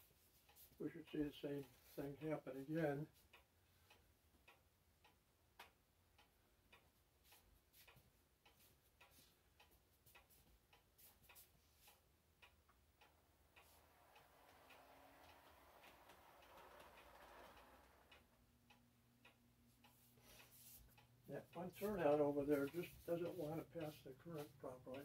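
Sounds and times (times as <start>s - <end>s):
model train wheels clicking: 13.4s - 18.4s
model train running noise: 13.6s - 18.2s.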